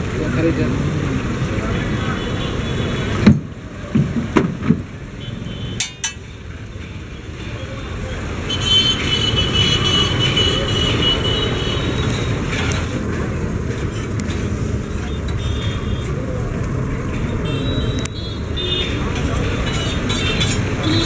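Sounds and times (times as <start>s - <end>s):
low street rumble: 0.0s - 21.0s.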